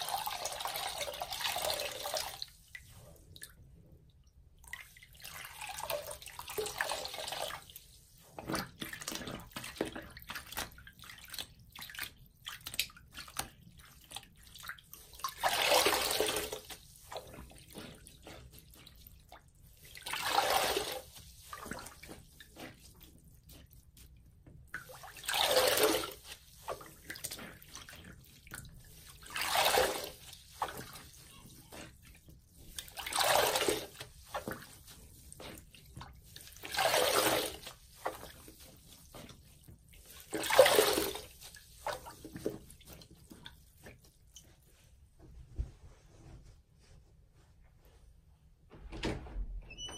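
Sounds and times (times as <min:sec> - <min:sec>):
sponge squelching in water: 0:00.0 - 0:48.0
wrung-out water splashing: 0:08.4 - 0:24.0, 0:24.7 - 0:44.0.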